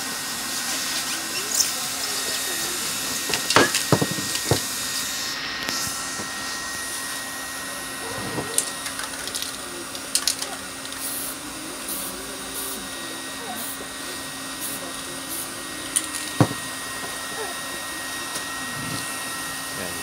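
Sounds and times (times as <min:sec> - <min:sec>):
spray can hissing: 0:10.1 - 0:12.8.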